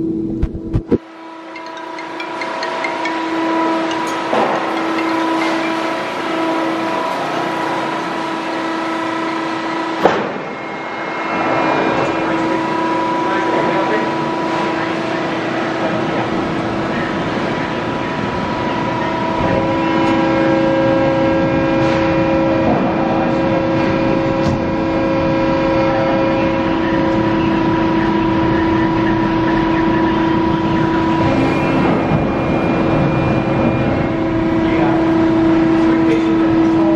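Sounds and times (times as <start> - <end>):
hydraulic pump hum and whine: 0.0 - 36.9
machine knocks: 3.8 - 6.0, 10.0 - 10.6.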